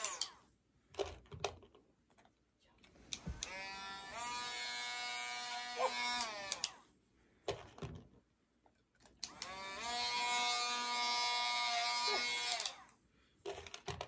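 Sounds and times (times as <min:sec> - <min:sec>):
nail grinder whining: 0:00.0 - 0:00.4, 0:03.2 - 0:06.9, 0:09.2 - 0:13.0.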